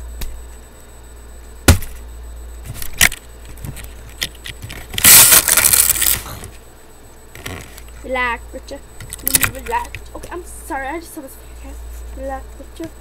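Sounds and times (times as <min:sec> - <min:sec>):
sharp knock on laptop: 0:01.7 - 0:02.0.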